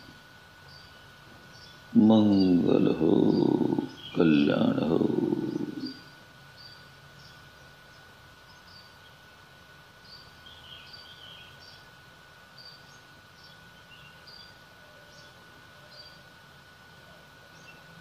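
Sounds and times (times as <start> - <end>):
bird chirps: 0.0 - 9.3, 10.0 - 11.9.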